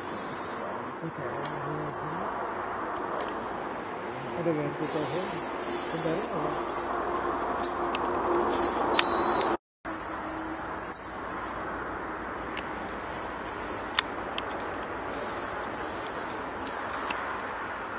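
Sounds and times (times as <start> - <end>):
steady forest hiss: 0.0 - 7.0, 9.9 - 17.9
monkey high-pitched whistling calls: 7.6 - 11.5.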